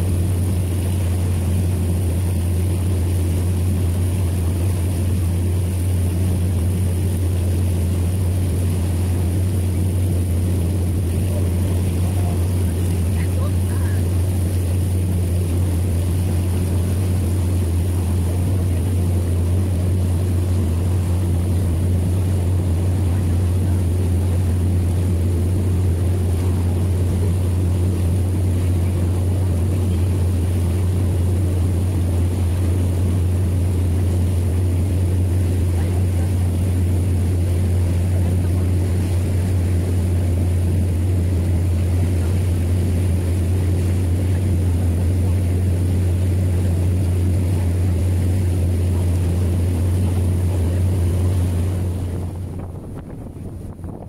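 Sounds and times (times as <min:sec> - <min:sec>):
motorboat engine droning: 0:00.0 - 0:54.0
water rushing past hull: 0:00.0 - 0:54.0.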